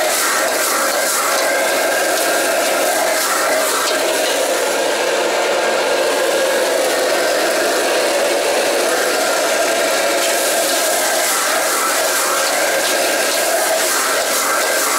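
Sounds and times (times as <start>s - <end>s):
food sizzling: 0.0s - 5.0s, 8.8s - 14.9s
gas wok burner roaring: 0.0s - 14.9s.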